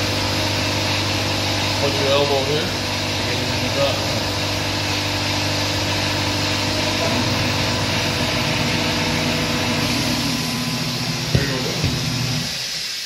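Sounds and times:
machine motor hum: 0:00.0 - 0:12.8
hiss: 0:11.3 - 0:13.0.

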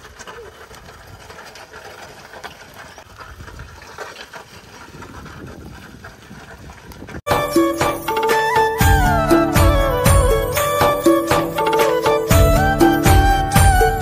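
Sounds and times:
wooden hoe scraping through soil: 0:00.0 - 0:07.3.

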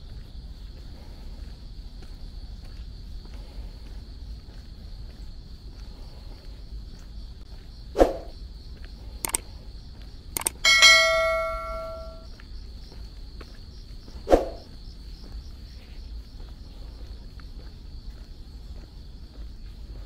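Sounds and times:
insects chirring: 0:00.0 - 0:20.0
sharp clicks: 0:09.2 - 0:09.5, 0:10.4 - 0:12.2
metal bell ringing: 0:10.5 - 0:12.2.

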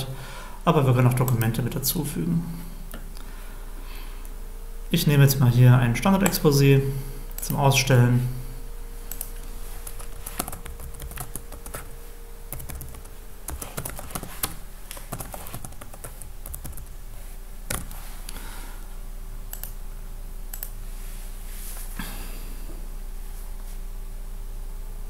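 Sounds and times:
faint steady hum: 0:00.0 - 0:25.0
typing on computer keyboard: 0:09.9 - 0:11.9, 0:12.5 - 0:16.9, 0:17.7 - 0:17.9.

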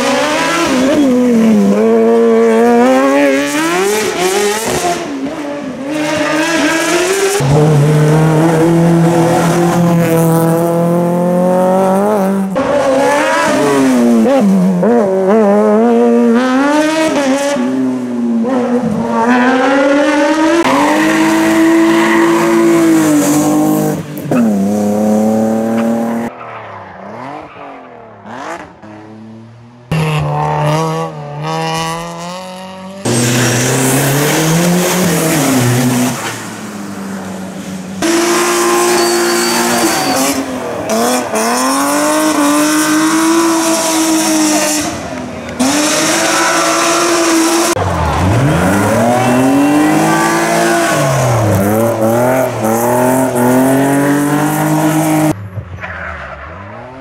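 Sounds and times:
race car engines revving: 0:00.0 - 0:57.0
tyre squeal: 0:38.3 - 0:40.6.

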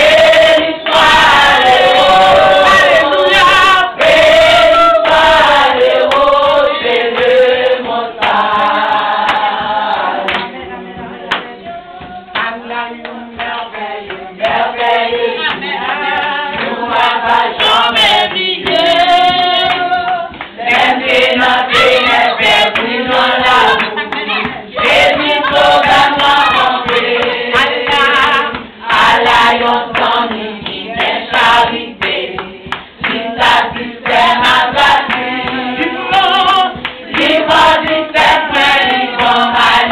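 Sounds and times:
rhythmic hand clapping: 0:00.0 - 0:39.9
women singing together: 0:00.0 - 0:39.9.

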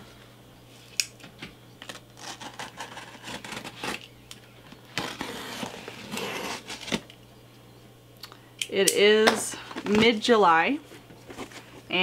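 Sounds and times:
blade cutting packing tape: 0:01.9 - 0:04.1, 0:04.9 - 0:07.1.

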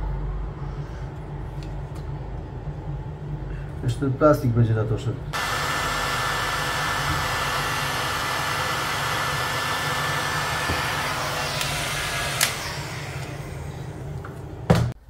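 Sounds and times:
heat gun blowing air: 0:05.4 - 0:14.1
heat gun switch click: 0:11.6 - 0:12.6.

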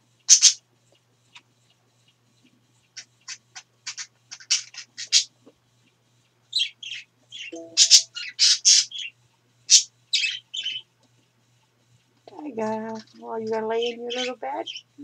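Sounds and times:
parakeets chirping: 0:00.3 - 0:00.6, 0:03.0 - 0:05.3, 0:06.5 - 0:10.9, 0:12.8 - 0:15.0.

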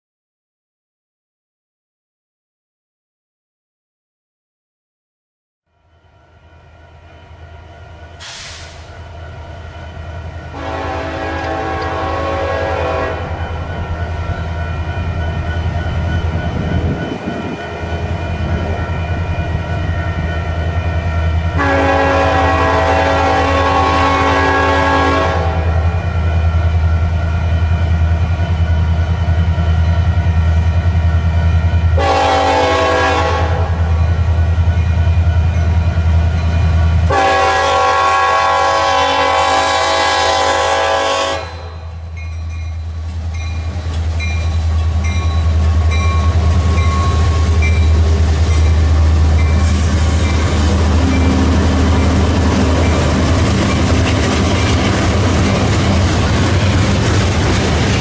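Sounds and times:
diesel locomotive rumble: 0:07.1 - 0:58.0
train air horn blowing: 0:08.2 - 0:08.9, 0:10.5 - 0:13.6, 0:21.6 - 0:26.0, 0:32.0 - 0:34.0, 0:37.1 - 0:42.0
train wheels clicking: 0:10.2 - 0:21.6, 0:42.2 - 0:58.0.

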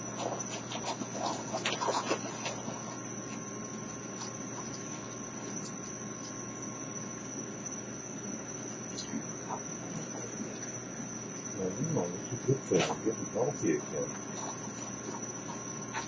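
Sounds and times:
animals eating dry kibble: 0:00.0 - 0:06.5, 0:14.0 - 0:16.0
crickets trilling: 0:00.0 - 0:16.0.

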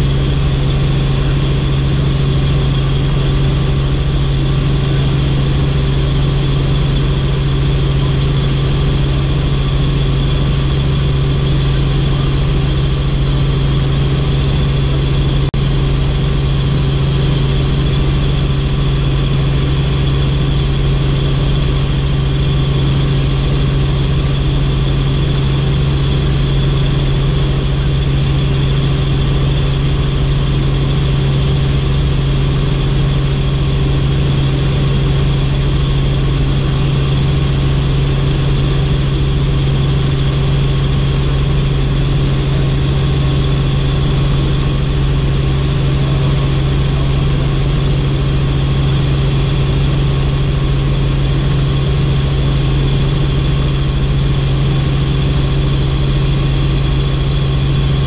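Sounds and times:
helicopter engine and rotors drone: 0:00.0 - 0:58.0
high steady whines: 0:00.0 - 0:58.0.

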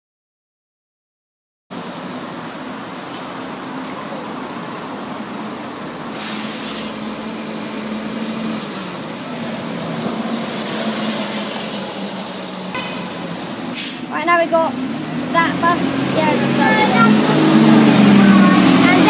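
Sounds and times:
bus diesel engine running: 0:01.7 - 0:19.0
burst of hissing air: 0:06.1 - 0:07.1.

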